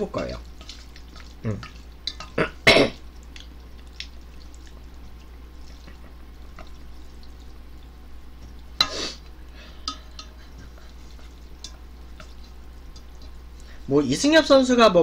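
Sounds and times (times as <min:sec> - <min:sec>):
chopsticks clicking on metal pot: 0:09.8 - 0:10.5, 0:11.2 - 0:13.3.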